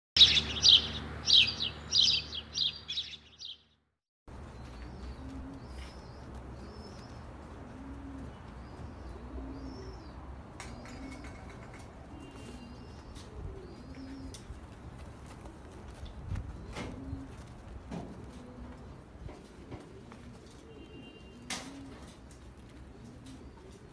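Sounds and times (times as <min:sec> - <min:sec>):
high bird chirps: 0:00.2 - 0:03.8
small birds chirping: 0:00.2 - 0:03.9, 0:04.5 - 0:07.4
pigeons cooing: 0:04.9 - 0:14.6, 0:16.5 - 0:23.9.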